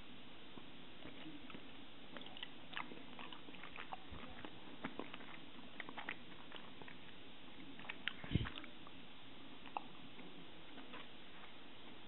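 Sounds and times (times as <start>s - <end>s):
mouth chewing sticky food: 1.0s - 11.6s.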